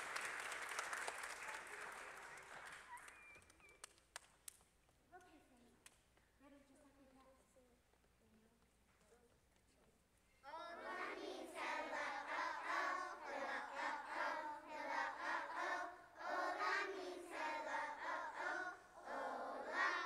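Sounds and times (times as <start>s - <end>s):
children singing together: 10.6s - 20.0s.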